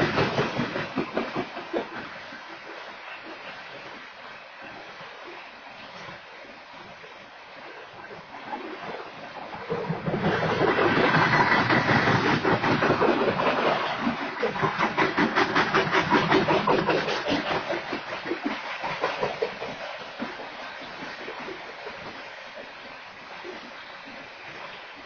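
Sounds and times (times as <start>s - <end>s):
train wheels clattering on rails: 0.0s - 2.8s, 9.6s - 21.5s.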